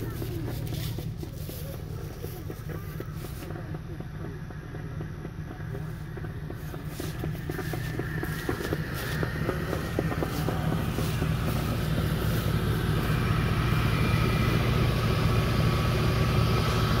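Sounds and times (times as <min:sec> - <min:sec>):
footsteps in grass: 0:00.0 - 0:03.6, 0:05.9 - 0:14.7
pickup engine idling: 0:00.0 - 0:17.0.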